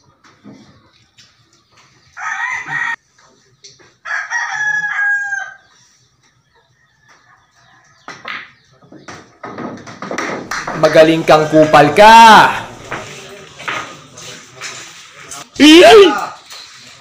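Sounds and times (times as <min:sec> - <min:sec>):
rooster crowing: 0:02.2 - 0:03.0, 0:04.0 - 0:05.6.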